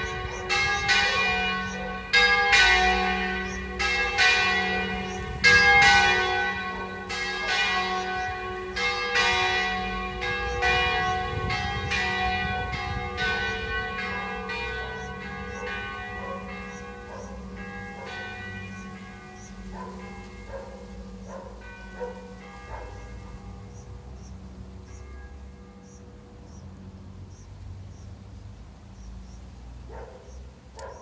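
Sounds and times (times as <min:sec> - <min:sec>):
church bells ringing: 0:00.0 - 0:31.0.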